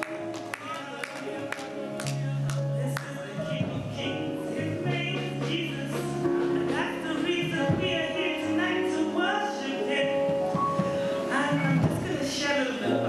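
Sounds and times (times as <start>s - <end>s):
gospel music on keyboard and guitar: 0.0s - 13.0s
person singing into a microphone: 0.0s - 13.0s.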